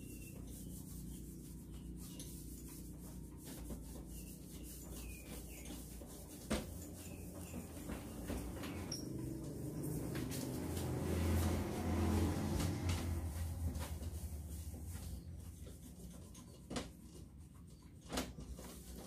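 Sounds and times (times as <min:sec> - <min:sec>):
cloth rubbing on glass: 0:00.0 - 0:16.2.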